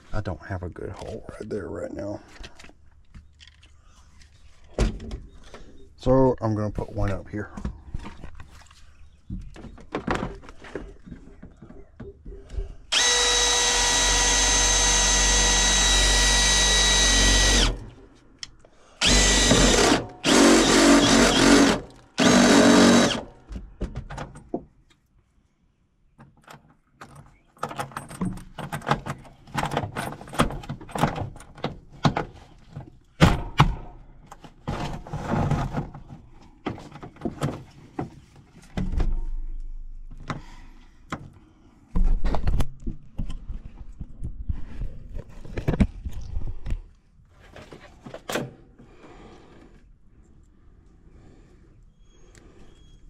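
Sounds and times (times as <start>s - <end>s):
power drill whining: 12.9s - 17.9s, 19.0s - 23.3s.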